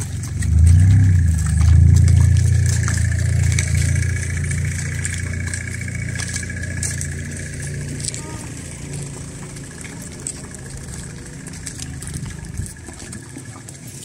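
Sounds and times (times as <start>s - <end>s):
low engine rumble: 0.0s - 14.0s.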